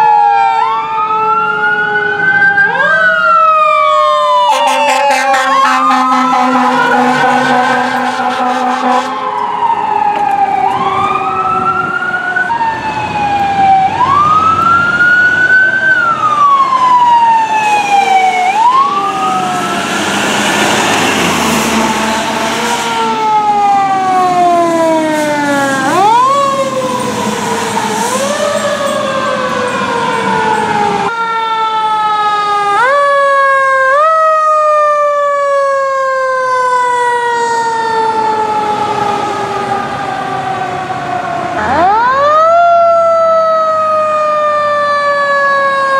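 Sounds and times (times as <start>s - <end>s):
fire truck sirens wailing: 0.0s - 45.9s
steady horn note: 4.5s - 9.5s.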